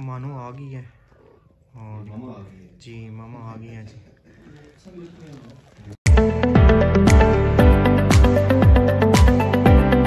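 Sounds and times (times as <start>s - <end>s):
electronic dance music: 6.1s - 10.0s.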